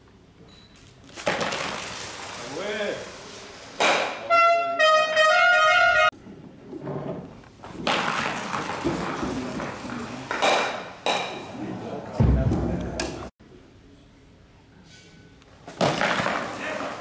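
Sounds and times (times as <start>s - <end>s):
brass-like fanfare: 4.2s - 6.1s.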